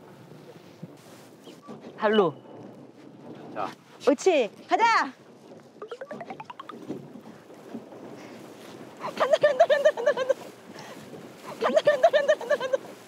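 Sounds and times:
wind on microphone: 2.6 - 13.0
paddle wheel splashing water: 4.3 - 13.0
high-pitched laughter: 9.0 - 10.4, 11.5 - 12.9.

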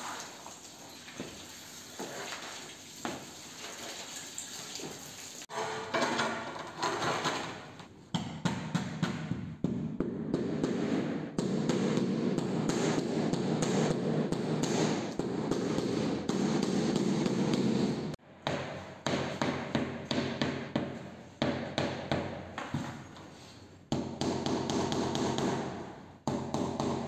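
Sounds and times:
squeegee swishing over wet tiles: 0.0 - 5.4.

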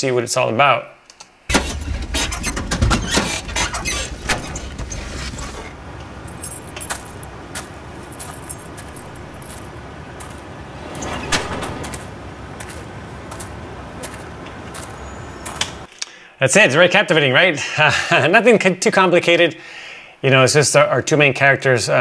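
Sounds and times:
footsteps: 1.5 - 15.9
light city traffic: 1.5 - 15.9
low in-car rumble: 1.5 - 15.9
keys jangling: 6.2 - 9.8.

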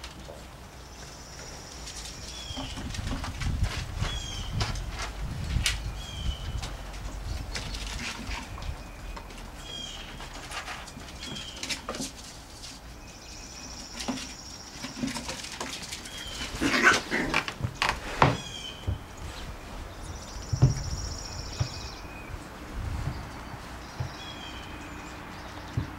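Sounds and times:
scuffling knocks: 14.0 - 24.7.

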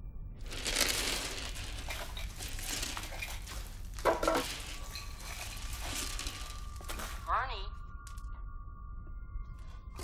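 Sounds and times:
clothing and bag rustling: 0.4 - 7.3
small hard objects clattering: 0.4 - 7.3.

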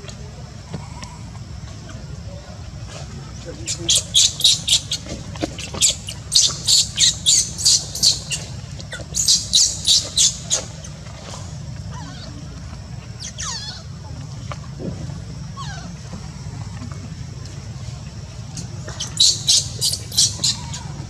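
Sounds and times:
baby monkey squealing: 3.6 - 10.8, 13.2 - 13.9, 15.6 - 15.9, 19.0 - 21.0.

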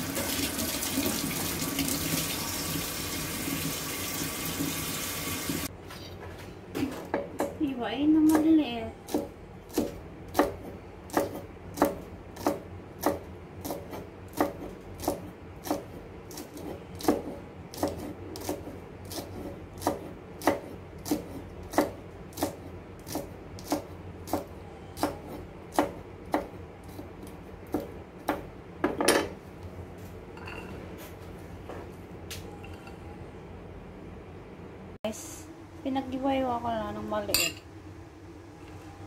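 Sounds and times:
knife chopping on wooden board: 9.1 - 29.0.

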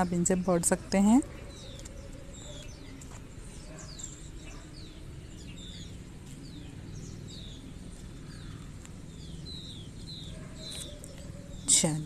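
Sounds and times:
birds chirping: 0.0 - 12.0
steady low hum: 0.0 - 12.0.

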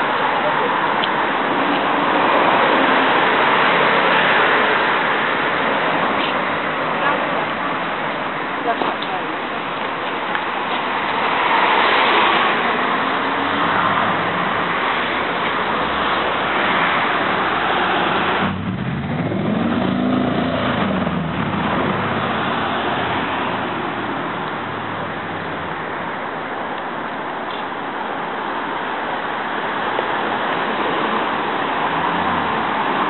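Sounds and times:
street traffic noise: 0.0 - 33.0
car driving past: 11.0 - 25.8.

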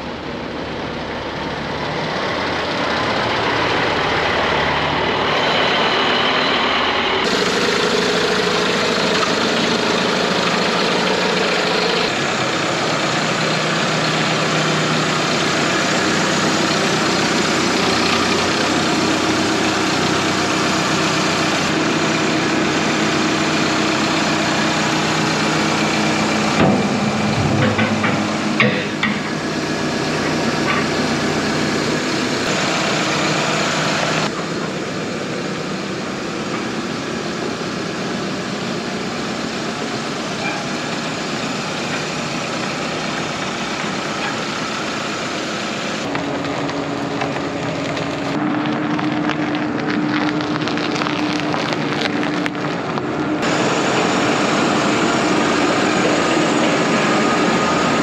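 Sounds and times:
heavy machinery engine running: 0.0 - 58.0
knocks and clatters: 26.6 - 29.4.

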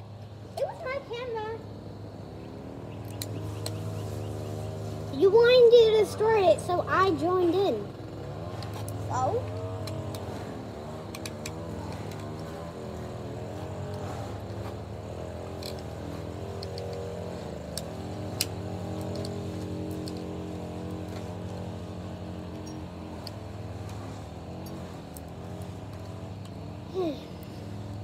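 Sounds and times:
engine running: 0.0 - 28.0
small clicks: 2.9 - 4.1, 8.6 - 14.7, 15.4 - 26.8.

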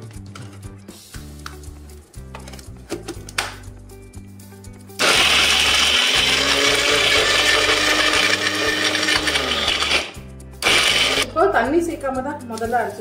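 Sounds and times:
electric mixer grinder running: 5.0 - 11.3.

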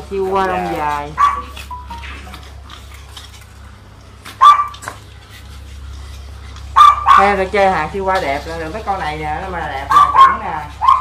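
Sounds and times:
small dog yapping: 1.2 - 1.7, 4.4 - 4.9, 6.8 - 7.4, 9.9 - 11.0.

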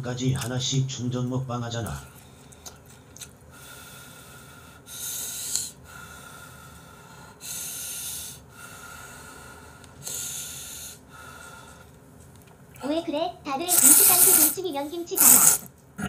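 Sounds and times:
person blowing on food: 13.7 - 15.7.

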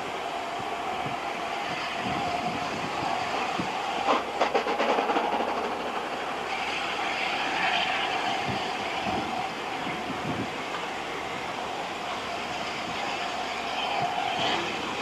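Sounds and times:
steam hiss: 0.0 - 15.0
wheels clattering over rail joints: 2.1 - 10.9.

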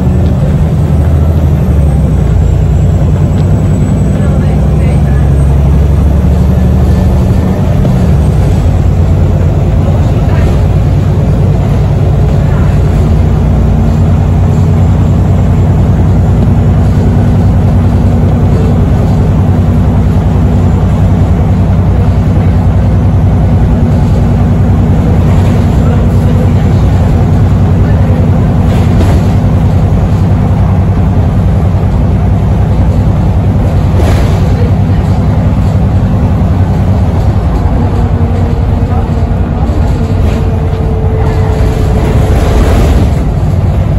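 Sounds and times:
bus engine drone: 0.0 - 43.9
road noise: 0.0 - 43.9.

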